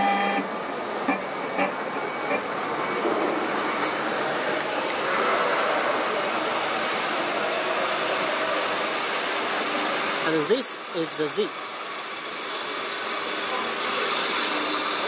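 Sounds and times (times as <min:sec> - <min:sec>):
router whirring hiss: 0:00.0 - 0:15.0.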